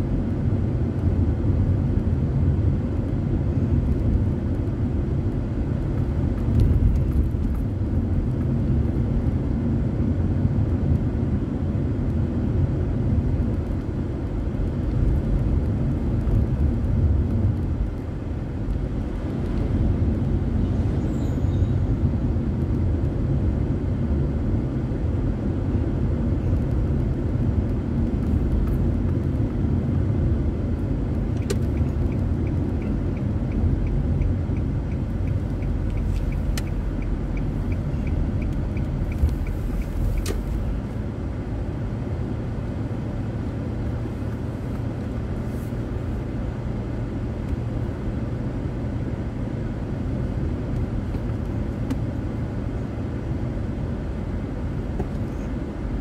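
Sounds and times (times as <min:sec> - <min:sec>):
car road and engine rumble: 0:00.0 - 0:56.0
turn signal ticking: 0:30.7 - 0:40.8.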